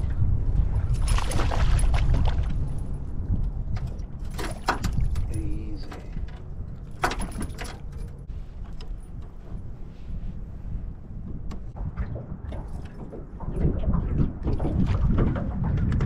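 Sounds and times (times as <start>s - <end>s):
wind on microphone: 0.0s - 6.6s, 8.3s - 16.0s
fish thrashing and splashing: 0.8s - 2.7s.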